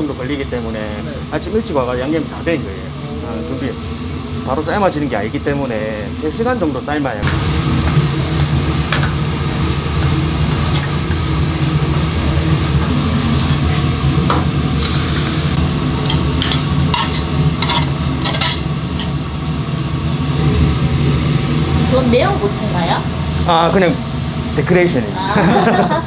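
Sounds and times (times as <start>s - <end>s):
steady low hum: 0.0s - 26.0s
meat sizzling in a pan: 7.3s - 19.6s
pan and ladle clinking: 16.0s - 19.2s.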